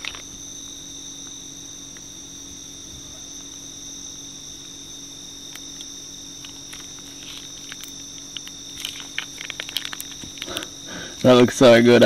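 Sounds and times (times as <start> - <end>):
crickets trilling: 0.0 - 12.0
faint low hum: 0.0 - 12.0
plastic sachet crinkling: 6.4 - 11.4.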